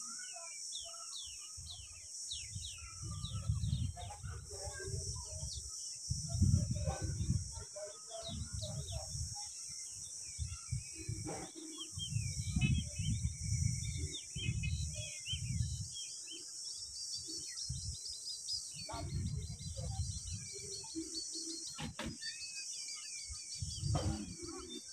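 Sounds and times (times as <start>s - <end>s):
small birds chirping: 0.0s - 24.9s
low rumbling on microphone: 2.4s - 7.6s, 10.7s - 15.9s, 23.6s - 24.7s
sharp knocks: 21.8s - 22.2s.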